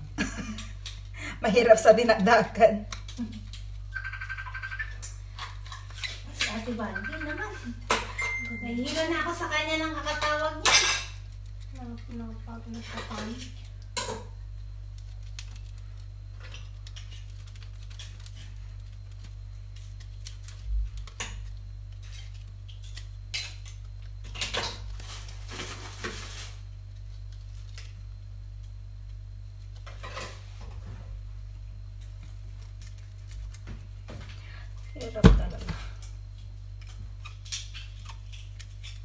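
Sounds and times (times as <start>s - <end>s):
knife scraping oyster shells: 4.6s - 7.2s, 16.3s - 24.7s, 36.7s - 39.0s.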